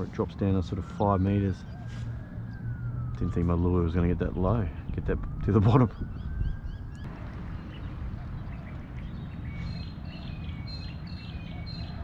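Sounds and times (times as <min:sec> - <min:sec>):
birds chirping: 0:00.0 - 0:12.0
wind: 0:00.0 - 0:12.0
water noise: 0:07.0 - 0:09.1.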